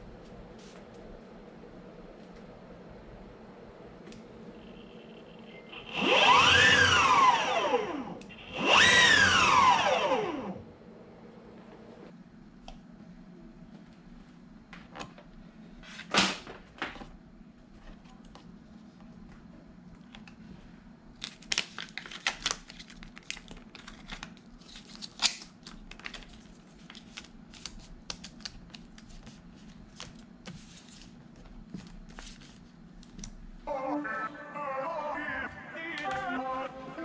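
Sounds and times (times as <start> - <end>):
faint steady hum: 0.0 - 37.0
sticker film crinkling: 21.2 - 31.2.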